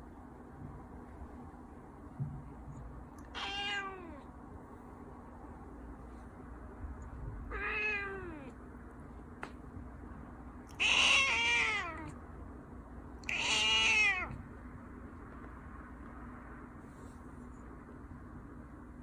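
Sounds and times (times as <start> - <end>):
cat meowing: 3.2 - 4.3, 7.5 - 8.6, 10.7 - 12.2, 13.2 - 14.4.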